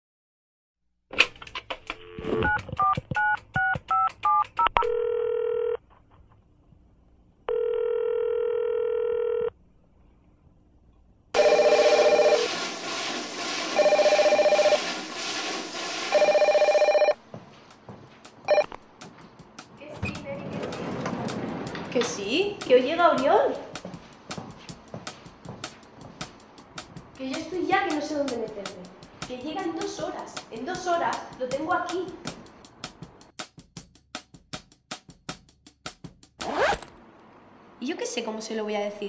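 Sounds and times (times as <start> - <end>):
keypad clicks and key tones: 1.9 - 5.0
telephone ringing: 2.0 - 5.8, 7.5 - 9.6, 11.4 - 12.5, 13.8 - 14.8, 16.1 - 17.2, 18.5 - 18.8
noisy background: 16.1 - 32.4.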